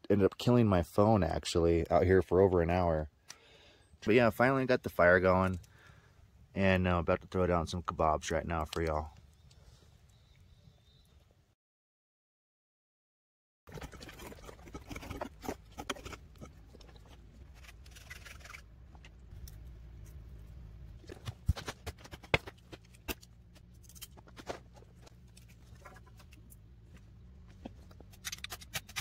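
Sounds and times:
low steady rumble: 0:14.3 - 0:28.4.

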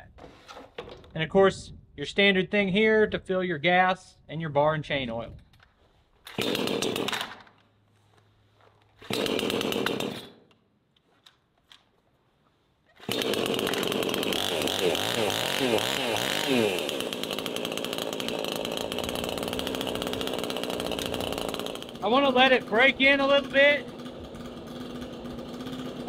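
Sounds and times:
chainsaw starting and revving: 0:06.3 - 0:07.4, 0:09.0 - 0:10.4, 0:13.0 - 0:26.0.

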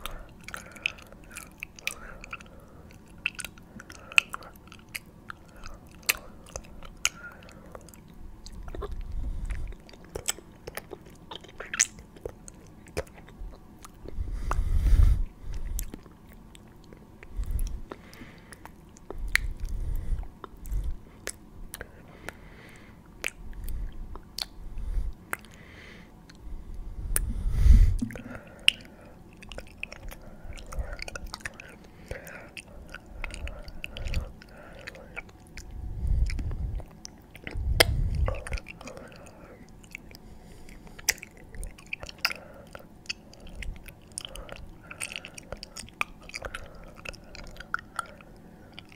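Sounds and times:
wet mouth clicks and lip smacks: 0:07.8 - 0:14.6, 0:15.6 - 0:19.8, 0:23.2 - 0:24.6, 0:40.9 - 0:48.2
muffled low swells: 0:26.5 - 0:28.3, 0:35.7 - 0:38.6.

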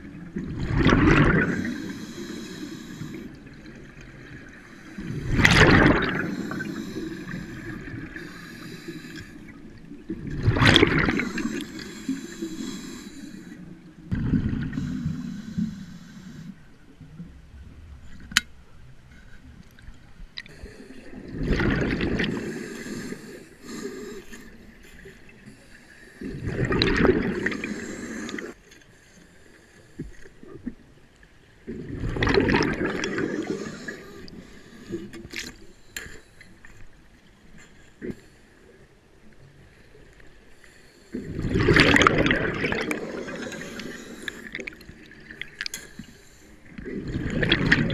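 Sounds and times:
underwater water noise: 0:00.0 - 0:47.9
diver exhaling bubbles: 0:05.0 - 0:08.2, 0:10.2 - 0:12.2, 0:21.1 - 0:23.0, 0:26.2 - 0:28.6, 0:31.7 - 0:34.0, 0:41.2 - 0:45.1, 0:46.8 - 0:47.9.

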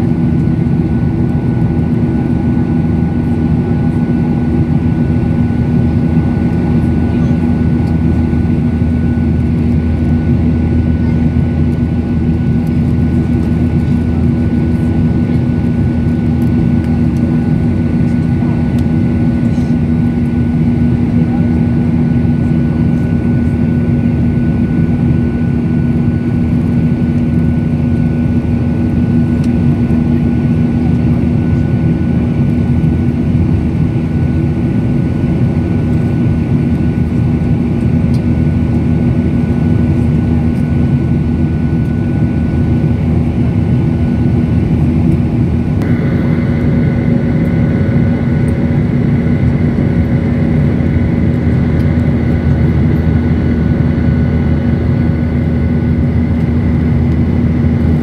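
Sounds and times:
airplane cabin engine drone: 0:00.0 - 0:58.0
high engine whine: 0:00.0 - 0:58.0.

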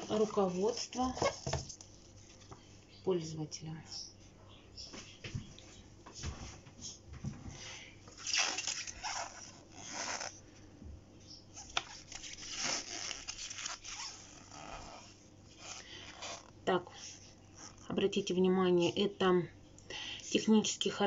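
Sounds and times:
paper pages rustling: 0:00.0 - 0:02.7, 0:11.6 - 0:14.8.

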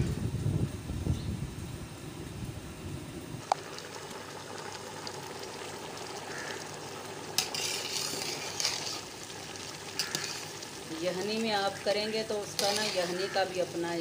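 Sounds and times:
rice boiling: 0:01.5 - 0:14.0
spoon stirring rice in pot: 0:07.3 - 0:11.4, 0:12.2 - 0:13.6.

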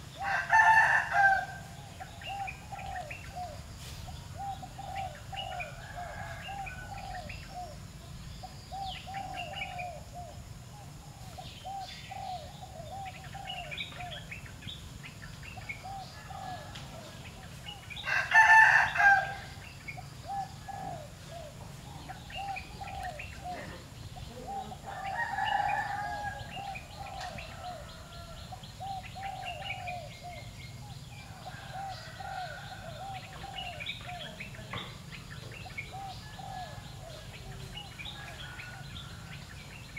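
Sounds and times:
small birds chirping: 0:00.0 - 0:39.9
rooster crowing: 0:00.2 - 0:01.8, 0:05.4 - 0:07.3, 0:18.0 - 0:19.6, 0:24.4 - 0:28.6, 0:31.2 - 0:34.4, 0:36.0 - 0:39.5.

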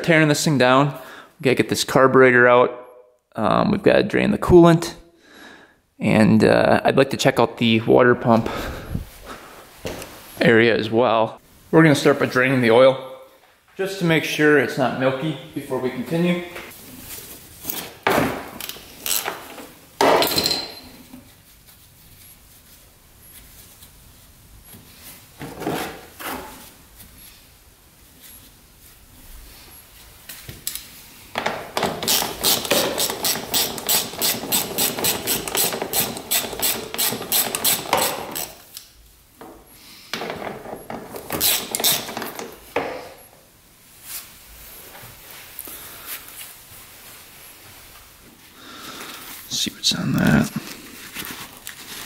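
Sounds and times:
tool knocks and clatter: 0:19.2 - 0:21.0, 0:31.3 - 0:38.4, 0:39.4 - 0:43.2
socket ratchet clicking: 0:31.8 - 0:38.9.

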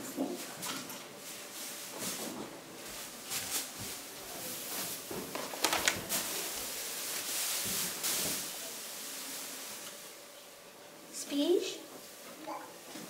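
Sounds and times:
rustling: 0:01.2 - 0:10.2.

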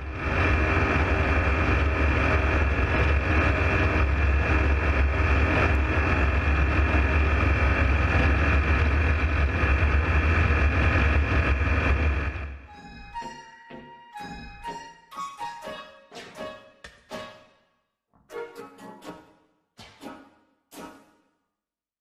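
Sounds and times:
aircraft engine drone: 0:00.0 - 0:14.9.

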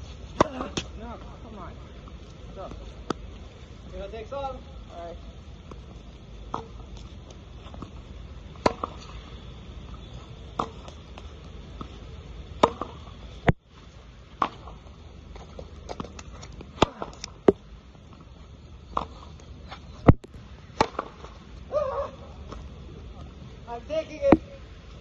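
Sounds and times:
tennis ball struck with racket: 0:08.6 - 0:09.0, 0:12.6 - 0:13.0, 0:20.8 - 0:21.2.

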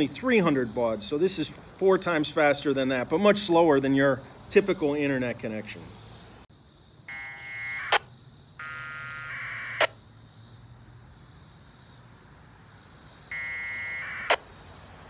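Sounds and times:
radio data tone bursts: 0:07.1 - 0:10.0, 0:13.3 - 0:14.4.

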